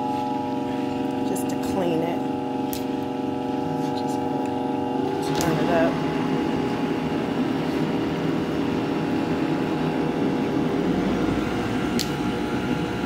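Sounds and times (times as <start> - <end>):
blender motor running: 4.8 - 13.0.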